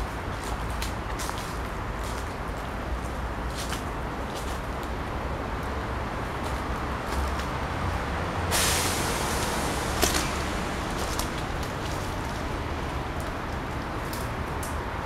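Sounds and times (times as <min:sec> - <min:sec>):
city traffic rumble: 0:00.0 - 0:15.0
loud hiss: 0:08.4 - 0:12.2.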